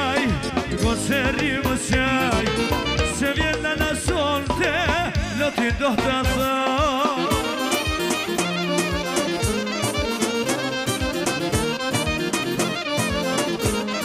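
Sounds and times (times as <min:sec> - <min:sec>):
sustained bass: 0:00.0 - 0:06.6
folk band playing live: 0:00.0 - 0:14.0
steady drum beat: 0:00.0 - 0:14.0
lead melody with vibrato: 0:00.8 - 0:04.1, 0:07.2 - 0:14.0.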